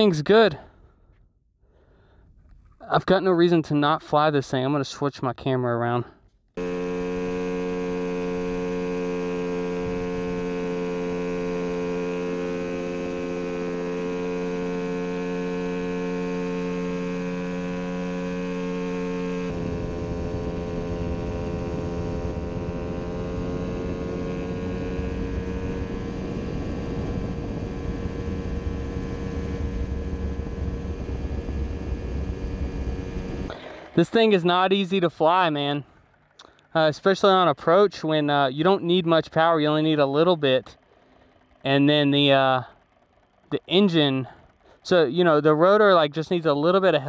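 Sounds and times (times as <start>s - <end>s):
helicopter engine humming: 0.0s - 5.5s, 6.1s - 47.0s
low wind rush: 19.5s - 36.1s.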